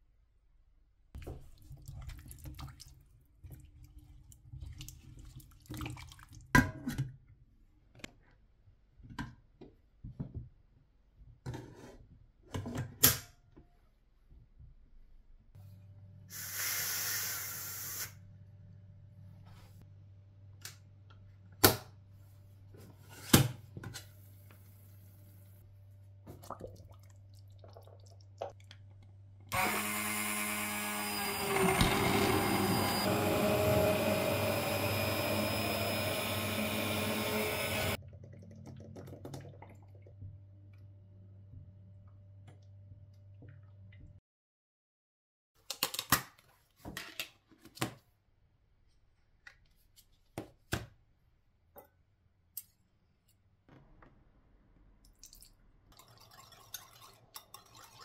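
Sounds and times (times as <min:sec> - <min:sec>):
immersion blender running: 0:29.5 - 0:38.0.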